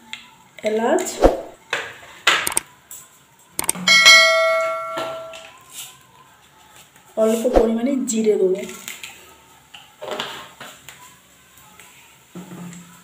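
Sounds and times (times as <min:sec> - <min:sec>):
short clicks: 0:02.4 - 0:02.6, 0:03.6 - 0:03.8
notification bell chime: 0:03.8 - 0:05.4.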